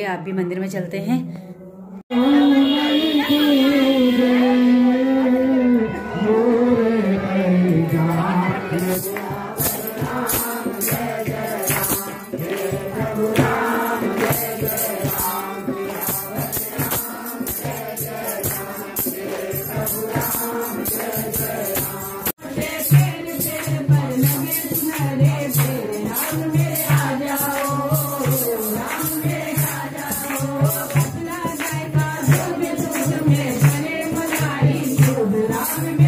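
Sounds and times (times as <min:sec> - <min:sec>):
group singing a hymn: 0:02.2 - 0:36.0
jingling hand percussion: 0:07.6 - 0:36.0.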